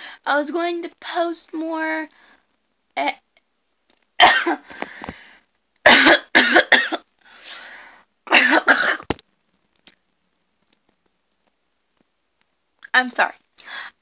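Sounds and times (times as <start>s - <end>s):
girl coughing: 4.2s - 4.6s, 5.9s - 7.1s, 8.3s - 9.1s
faint breaths: 4.6s - 5.6s, 7.2s - 8.2s.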